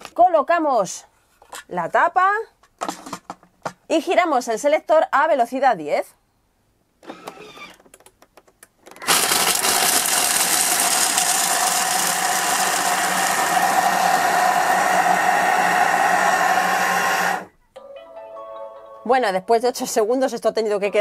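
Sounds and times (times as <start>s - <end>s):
food processor grinding: 9.0s - 17.5s.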